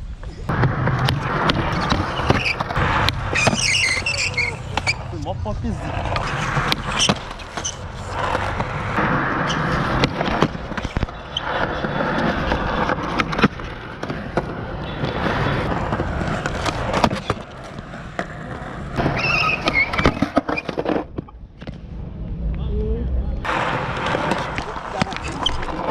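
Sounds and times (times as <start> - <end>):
skateboard wheels rolling on concrete: 0.0 - 22.7, 23.4 - 25.9
skateboard clacks: 0.5 - 5.0, 5.9 - 21.8, 23.5 - 25.9
short high squeak: 3.3 - 5.1, 19.2 - 20.7.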